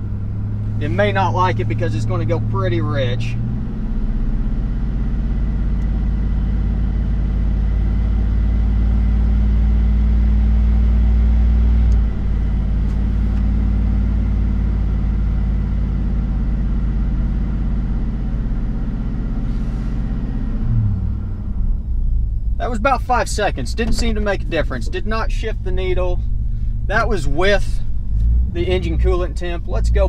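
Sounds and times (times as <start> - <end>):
engine running steadily: 0.0 - 30.0.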